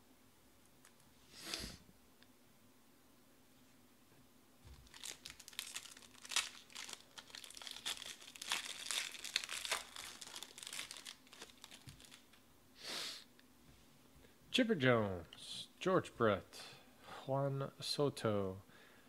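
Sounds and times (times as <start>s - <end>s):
foil wrapper crinkling: 4.8s - 12.4s.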